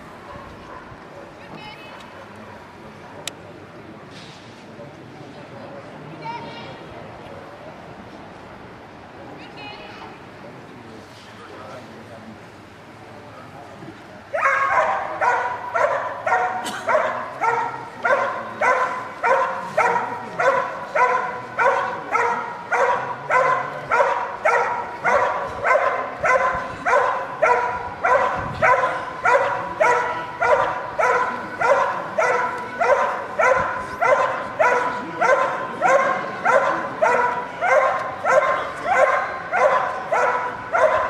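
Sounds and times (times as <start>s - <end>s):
dog barking: 0.3s - 0.9s, 14.4s - 41.0s.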